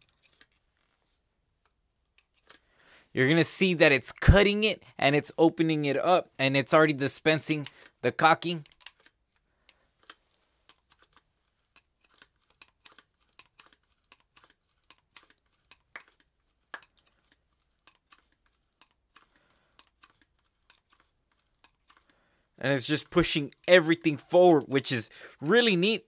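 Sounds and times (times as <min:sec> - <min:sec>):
caulking gun clicks and crackles: 0:07.2 - 0:25.9.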